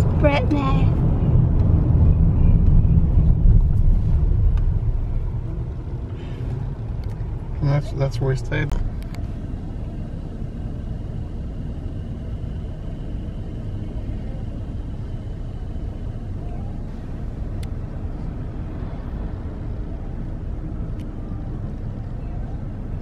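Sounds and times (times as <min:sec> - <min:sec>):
car rumble from inside: 0:00.0 - 0:23.0.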